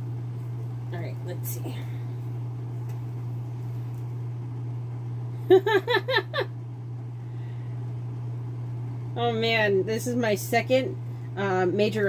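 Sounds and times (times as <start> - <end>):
low hum: 0.0 - 12.0
woman giggling: 5.5 - 6.5.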